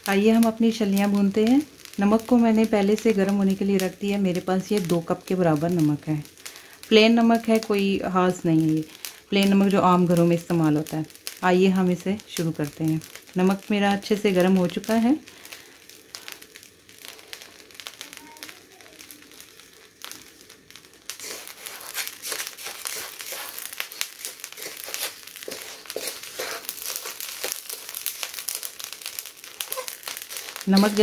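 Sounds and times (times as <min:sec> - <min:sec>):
spatula scraping salt in a wok: 0:21.1 - 0:31.0.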